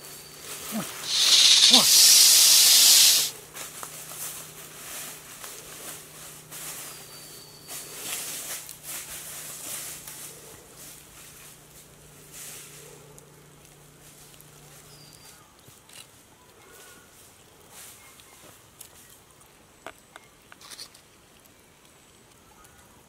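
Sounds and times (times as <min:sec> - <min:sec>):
faint forest background: 0:00.0 - 0:23.0
cobra hissing: 0:00.7 - 0:03.4.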